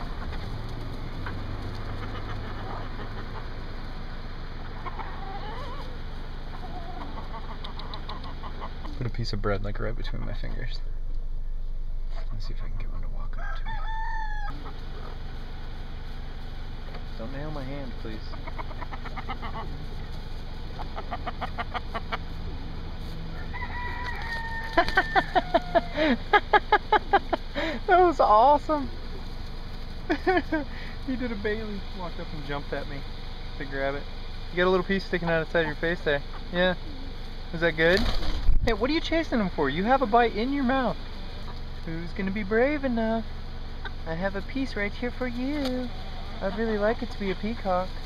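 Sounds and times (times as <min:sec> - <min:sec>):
chicken wavering calls: 0:00.0 - 0:09.0, 0:12.1 - 0:48.0
chickens clucking: 0:00.0 - 0:10.6, 0:12.1 - 0:48.0
steady low hum: 0:00.0 - 0:48.0
rooster crowing: 0:04.8 - 0:06.0, 0:13.3 - 0:14.8, 0:23.2 - 0:26.3.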